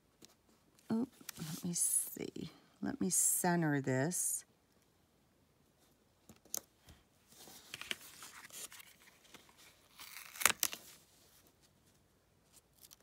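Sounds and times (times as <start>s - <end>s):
paper rustling: 7.3s - 13.0s.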